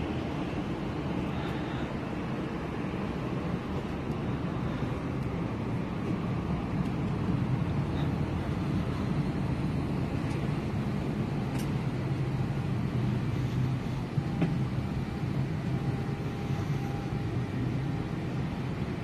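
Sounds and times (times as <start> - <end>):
air-conditioning humming: 0.0 - 19.0.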